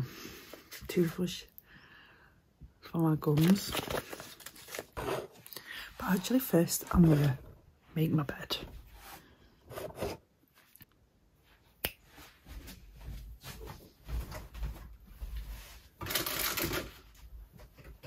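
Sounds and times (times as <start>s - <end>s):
bedding rustling and thudding: 12.4s - 16.0s.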